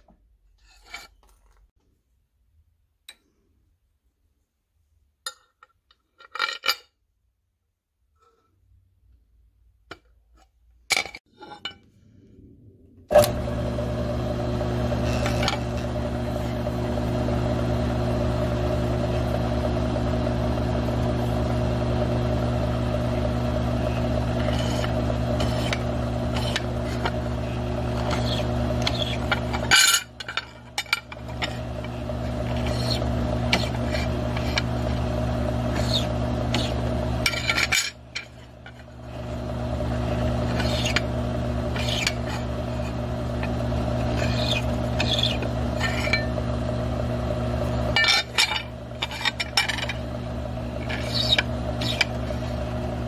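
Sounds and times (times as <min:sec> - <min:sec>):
cutter boring into metal: 0:13.1 - 0:53.0
mill-drill motor running: 0:13.1 - 0:53.0.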